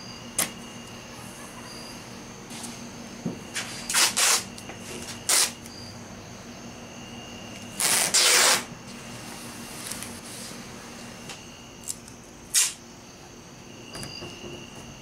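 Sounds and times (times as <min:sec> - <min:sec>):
faint steady hum: 0:00.0 - 0:15.0
masking tape ripping off roll: 0:03.9 - 0:04.5, 0:05.3 - 0:05.6, 0:07.8 - 0:08.7.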